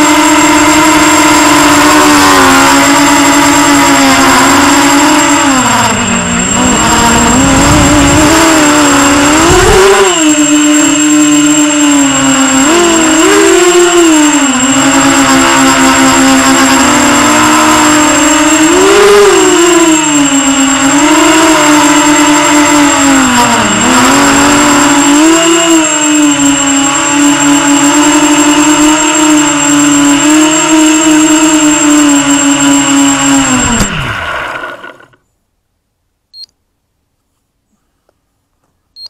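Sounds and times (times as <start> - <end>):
quadcopter motors whining: 0.0 - 35.3
faint short beep: 36.3 - 36.6.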